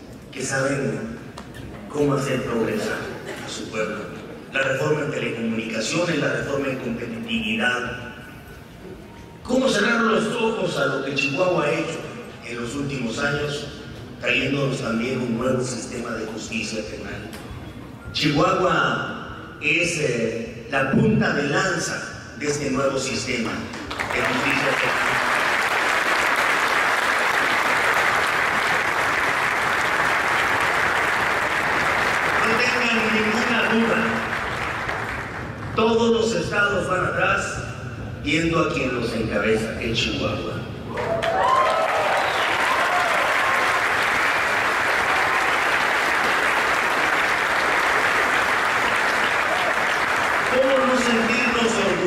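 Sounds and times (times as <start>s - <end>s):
crowd clapping: 23.4s - 35.8s, 40.9s - 52.0s
audience applauding: 23.7s - 35.6s, 41.0s - 52.0s.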